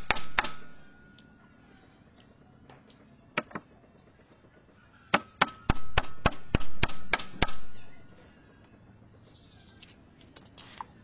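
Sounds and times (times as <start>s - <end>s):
faint ringing note: 0.7s - 2.1s.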